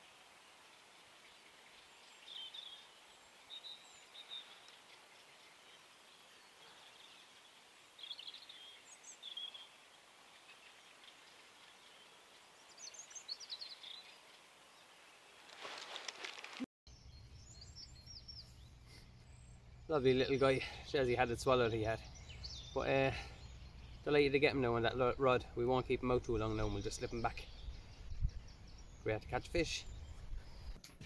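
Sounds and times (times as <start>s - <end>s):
small birds chirping: 0.0s - 30.8s
faint outdoor hiss: 0.0s - 31.0s
rustling handling noise: 15.4s - 16.6s.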